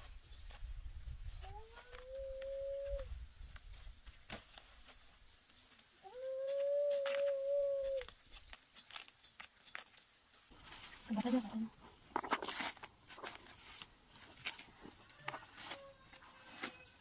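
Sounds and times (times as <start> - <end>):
animal howling: 6.0 - 8.1.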